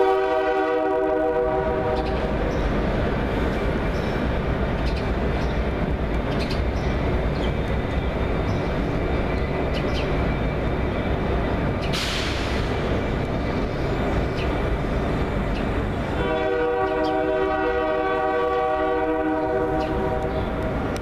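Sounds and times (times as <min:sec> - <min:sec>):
air horn blast: 0:00.0 - 0:02.0, 0:16.2 - 0:20.3
diesel locomotives rumbling past: 0:00.0 - 0:21.0.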